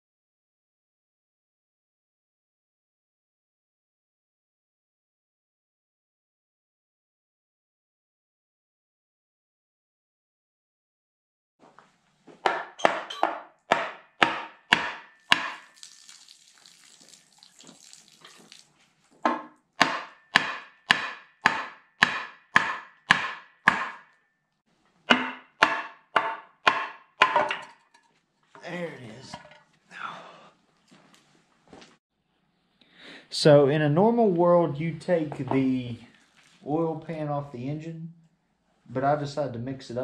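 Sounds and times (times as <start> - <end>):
hammer striking metal housing: 25.1 - 27.7.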